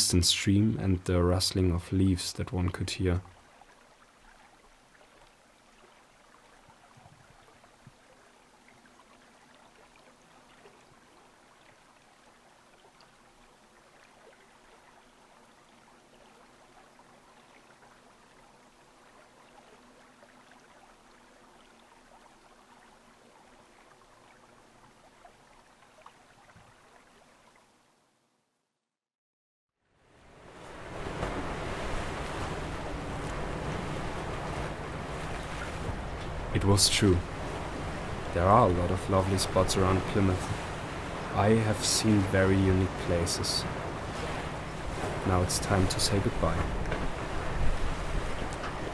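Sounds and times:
distant stream running: 0.0s - 28.2s, 29.9s - 48.9s
leaves rustling: 30.5s - 48.9s.

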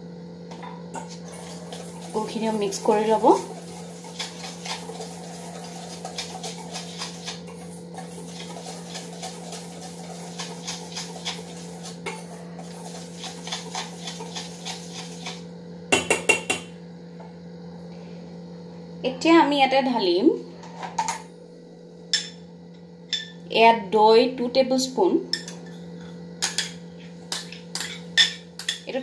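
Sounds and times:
whisk scraping metal bowl: 1.0s - 15.4s
whisk clinking against bowl: 2.9s - 15.3s, 26.4s - 28.9s.

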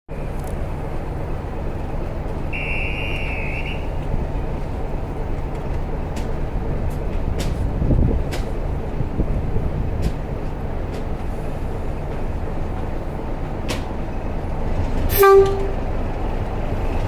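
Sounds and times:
diesel locomotive idling: 0.1s - 17.0s
shrill whistle blast: 2.5s - 3.9s.

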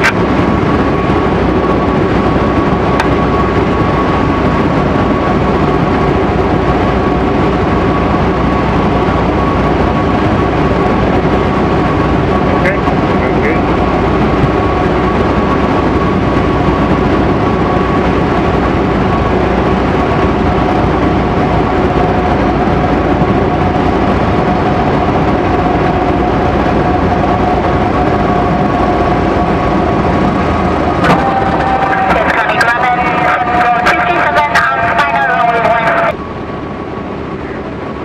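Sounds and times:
propeller and airflow noise: 0.0s - 38.0s
small plane engine running: 0.0s - 38.0s
steady whine: 0.0s - 38.0s.

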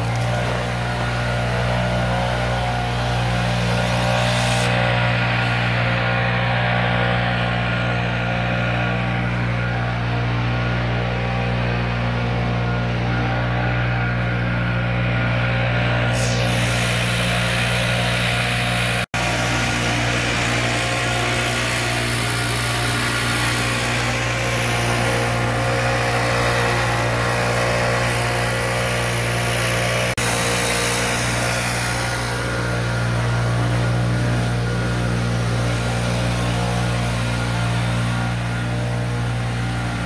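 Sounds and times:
leaf blower engine running: 0.0s - 40.0s.

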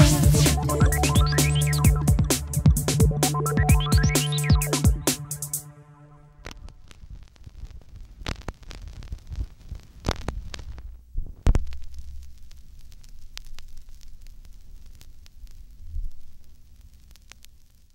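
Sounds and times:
low throbbing electronic rumble: 0.0s - 6.9s
clicks and crackles: 6.4s - 17.9s.

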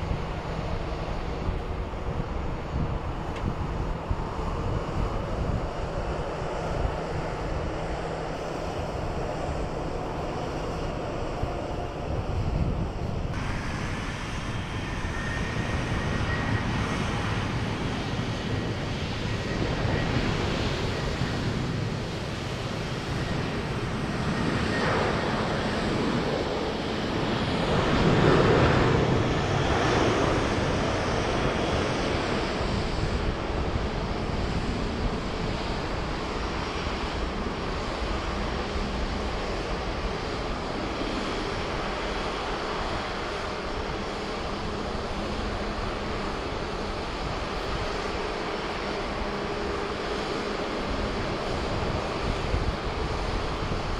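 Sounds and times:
faint engine whine: 0.0s - 53.9s
jet engines rumbling: 0.0s - 53.9s
wind noise on microphone: 0.0s - 53.9s.

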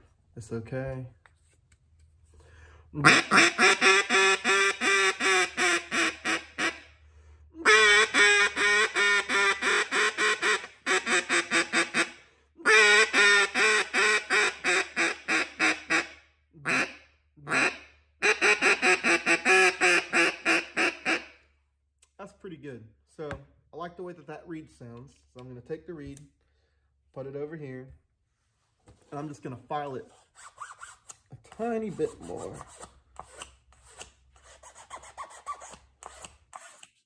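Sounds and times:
duck call quacks: 3.0s - 6.9s, 7.6s - 21.4s.

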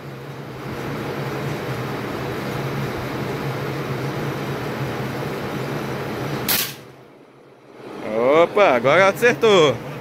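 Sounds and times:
steady background hum: 0.0s - 10.0s
rifle shot: 6.5s - 6.9s.

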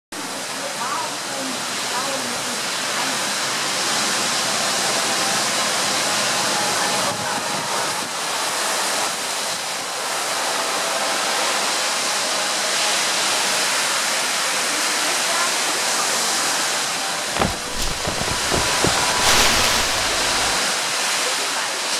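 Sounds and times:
storm wind through trees: 17.4s - 20.8s.

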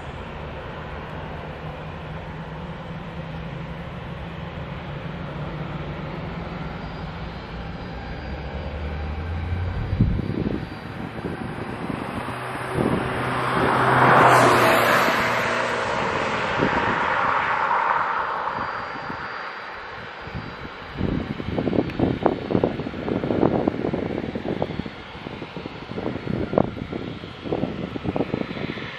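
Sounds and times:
jet engines humming and whining: 0.0s - 28.9s.

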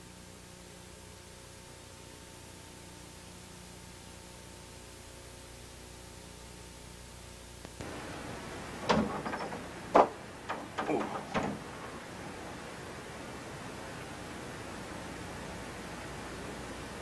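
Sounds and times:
knocks and clatters: 7.8s - 12.5s.

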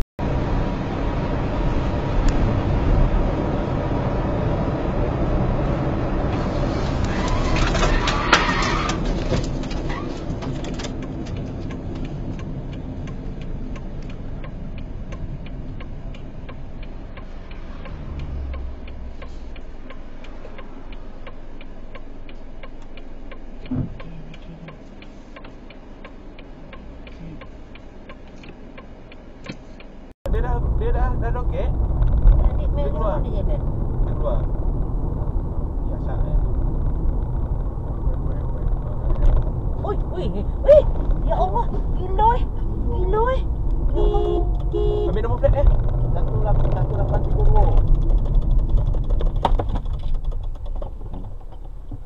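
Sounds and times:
road and engine noise inside car: 0.0s - 52.0s
faint evenly spaced ticking: 10.9s - 33.7s.

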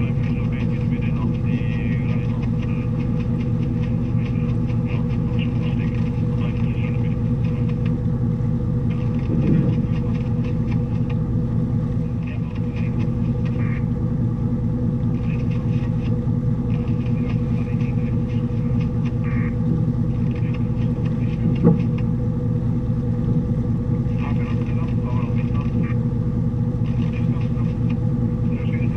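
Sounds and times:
boat engine idling: 0.0s - 28.9s.

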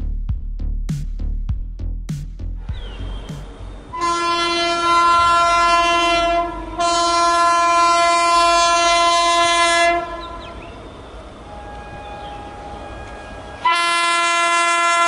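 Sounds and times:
train running noise: 2.6s - 15.0s
train horn blasts: 3.9s - 10.8s, 11.5s - 15.0s.

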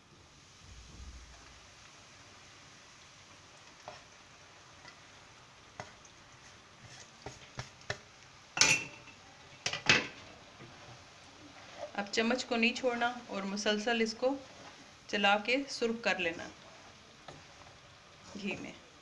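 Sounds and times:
faint sizzle: 0.0s - 19.0s
wooden spoon scraping metal pan: 3.6s - 4.1s, 5.8s - 8.0s, 8.6s - 19.0s.

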